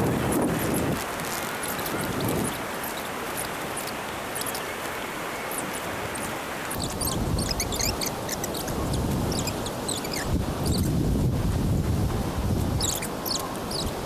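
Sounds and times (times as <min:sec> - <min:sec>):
wind buffeting microphone: 0:00.0 - 0:02.8, 0:06.7 - 0:14.0
light rustling and crackles: 0:00.0 - 0:14.0.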